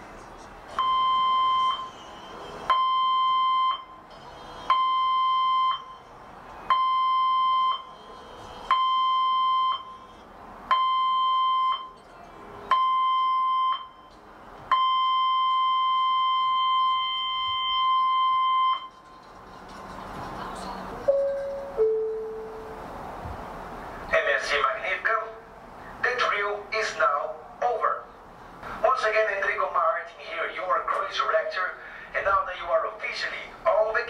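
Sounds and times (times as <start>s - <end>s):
electronic emergency alarm blasts: 0.8s - 1.9s, 2.7s - 4.0s, 4.7s - 6.0s, 6.7s - 7.9s, 8.7s - 10.0s, 10.7s - 12.0s, 12.7s - 14.1s, 14.7s - 18.9s.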